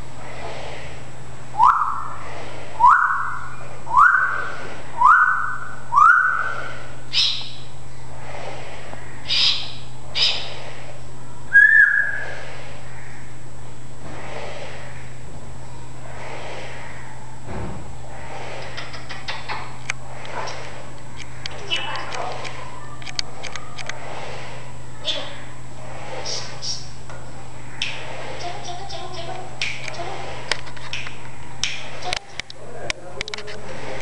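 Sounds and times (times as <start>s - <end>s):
parrot whistling: 1.6s - 2.2s, 2.8s - 7.6s, 9.3s - 10.5s, 11.5s - 12.3s
parrot chirps: 2.8s - 7.7s, 9.2s - 10.6s, 26.3s - 26.9s.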